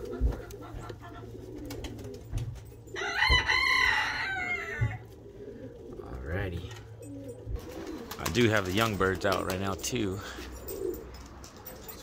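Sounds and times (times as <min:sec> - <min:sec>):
rooster crowing: 0:03.0 - 0:05.1.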